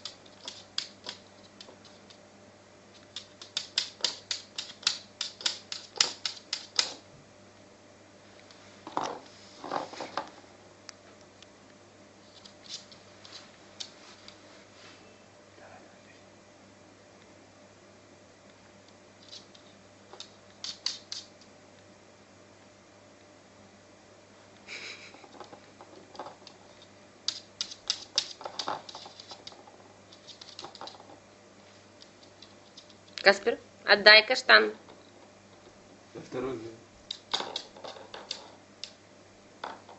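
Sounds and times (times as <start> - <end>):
claws and chestnuts tapping on floor: 0.0 - 2.2, 3.0 - 7.0, 8.8 - 10.4, 19.2 - 21.4, 25.2 - 31.2, 37.0 - 39.0, 39.6 - 39.9
sharp clicks: 3.1 - 7.0.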